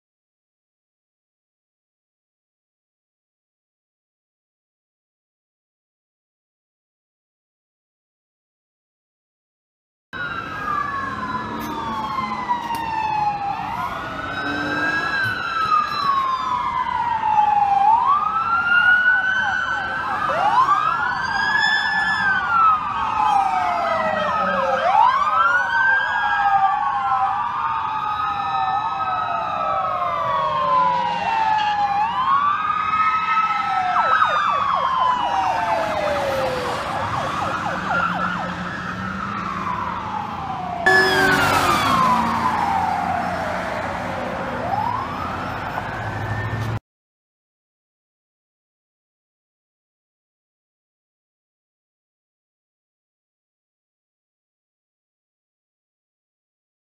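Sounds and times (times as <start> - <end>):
police sirens wailing: 10.2 - 46.8.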